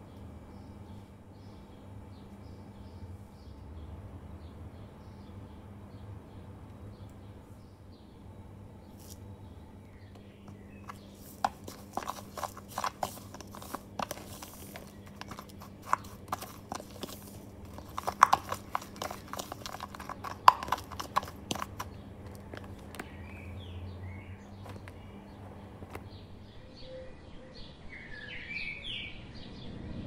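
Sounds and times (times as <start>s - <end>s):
spoon scraping plastic jug: 10.2s - 23.5s, 24.5s - 26.2s.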